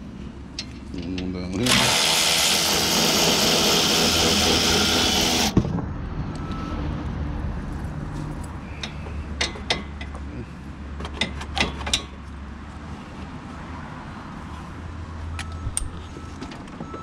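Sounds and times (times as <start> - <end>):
power ratchet spinning: 1.6 - 5.6.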